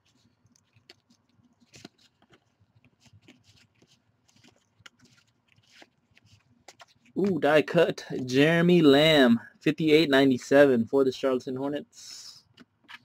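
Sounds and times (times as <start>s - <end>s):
trading cards flicking and rustling: 0.0s - 8.4s, 12.4s - 13.0s.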